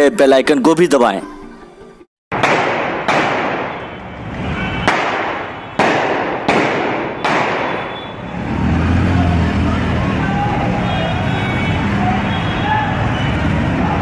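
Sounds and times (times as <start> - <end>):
gunshots echoing: 2.3 - 4.0, 4.7 - 8.0
low traffic rumble: 2.4 - 14.0.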